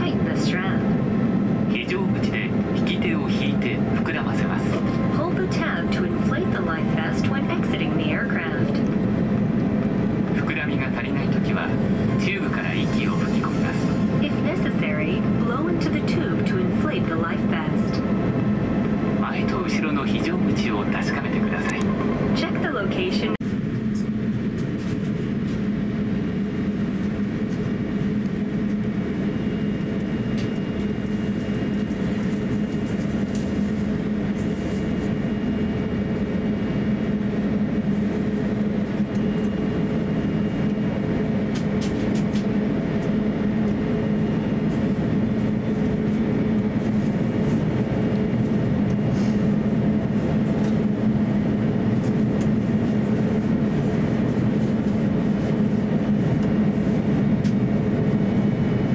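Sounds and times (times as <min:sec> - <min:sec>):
aircraft cabin engine drone: 0:00.0 - 0:58.9.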